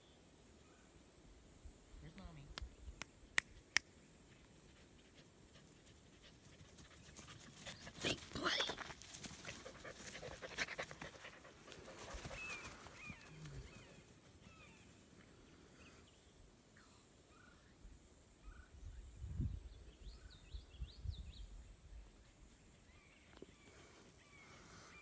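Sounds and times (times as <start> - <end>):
small birds chirping: 2.0 - 25.0
puppy panting: 9.3 - 13.2.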